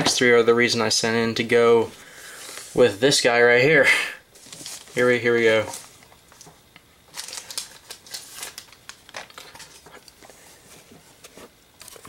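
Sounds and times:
plastic sleeve crinkling: 0:07.1 - 0:10.3.

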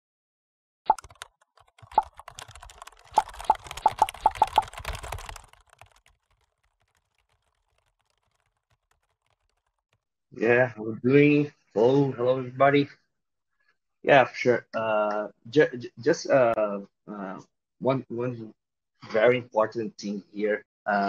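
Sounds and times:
keyboard typing clicks: 0:00.9 - 0:10.0.

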